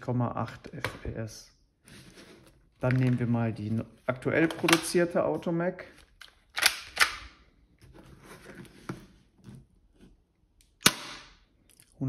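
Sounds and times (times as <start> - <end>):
airsoft pistol shot: 10.8 - 11.3.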